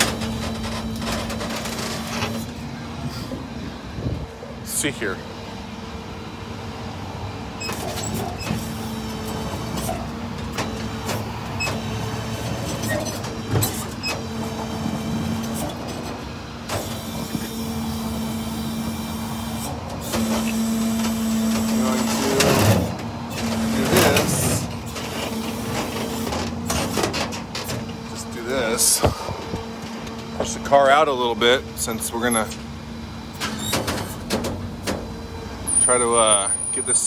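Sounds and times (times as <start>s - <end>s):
truck engine humming: 0.0s - 37.0s.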